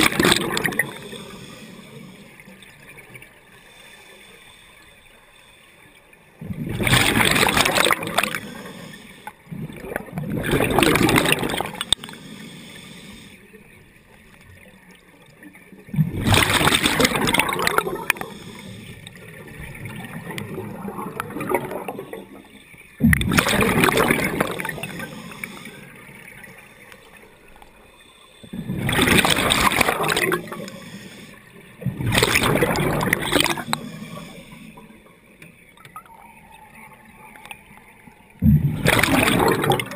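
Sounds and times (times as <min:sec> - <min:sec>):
diver exhaling bubbles: 0:00.0 - 0:01.4, 0:06.4 - 0:08.9, 0:09.5 - 0:12.2, 0:15.9 - 0:22.4, 0:23.0 - 0:26.0, 0:28.5 - 0:31.0, 0:31.8 - 0:34.4, 0:38.4 - 0:39.9.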